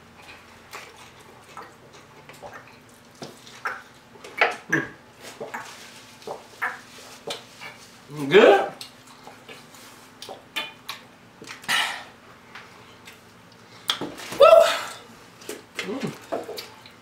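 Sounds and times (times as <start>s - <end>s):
chewing food: 0.1s - 8.0s.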